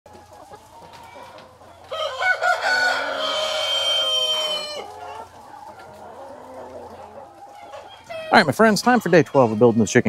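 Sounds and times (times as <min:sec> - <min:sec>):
rooster crowing: 0:01.9 - 0:04.9.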